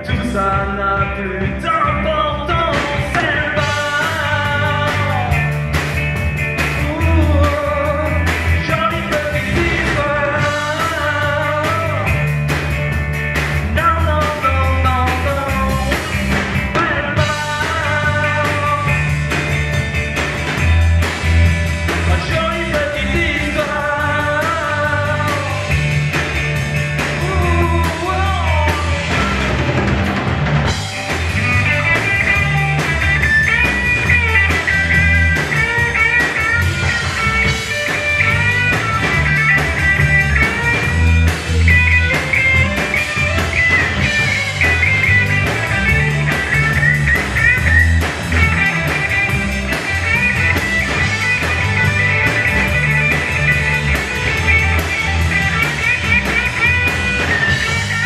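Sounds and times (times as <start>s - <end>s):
rock band playing: 0.0s - 58.0s
lead guitar bending pitch: 29.1s - 58.0s.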